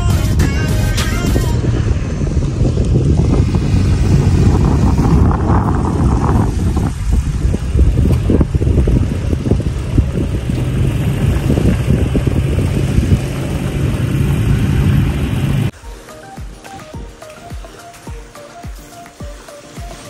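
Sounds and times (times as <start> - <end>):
wind buffeting microphone: 0.0 - 15.8
engine running: 1.4 - 15.7
quiet music: 15.8 - 20.0.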